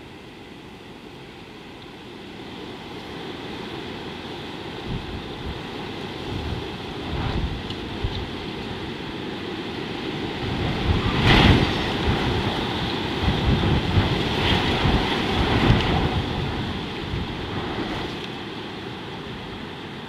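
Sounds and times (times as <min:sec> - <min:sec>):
wind buffeting microphone: 0:04.8 - 0:09.1, 0:10.1 - 0:18.3.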